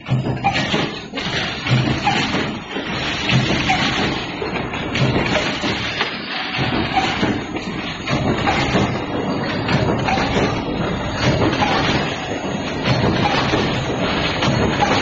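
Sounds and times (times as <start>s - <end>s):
machinery clattering: 0.0s - 15.0s.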